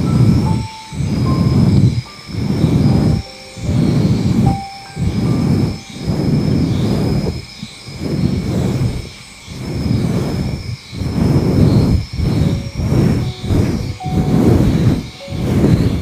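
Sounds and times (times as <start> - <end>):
hands rubbing over microphone: 8.0 - 16.0.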